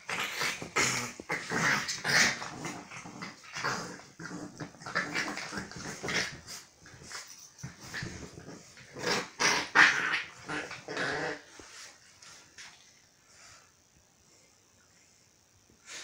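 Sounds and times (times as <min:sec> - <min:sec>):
dogs growling while play-fighting: 0:00.0 - 0:11.9.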